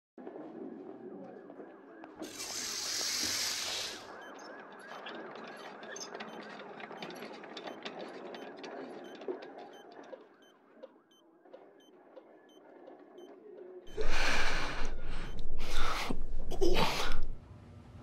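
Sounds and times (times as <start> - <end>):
electronic beeping: 13.2 - 17.4
room murmur: 13.9 - 17.4.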